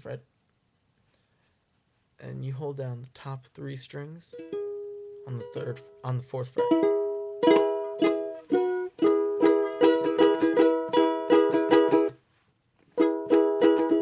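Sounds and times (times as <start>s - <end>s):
ukulele strumming: 4.3s - 12.2s, 12.9s - 14.0s.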